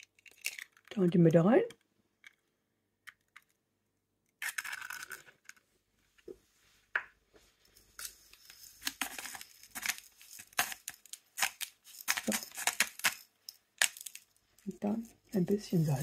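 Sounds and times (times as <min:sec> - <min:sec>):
spice mill grinding: 0:08.0 - 0:14.3.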